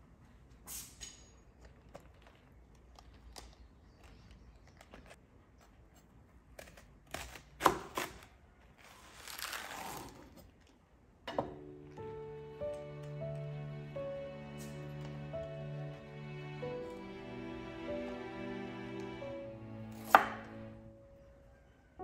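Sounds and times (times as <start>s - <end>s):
knife chopping lettuce: 6.5s - 8.4s, 20.0s - 20.5s.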